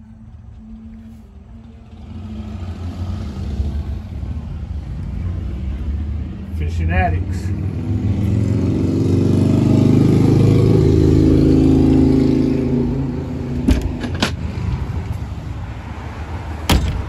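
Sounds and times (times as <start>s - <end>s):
sharp knocks: 16.7s - 17.0s.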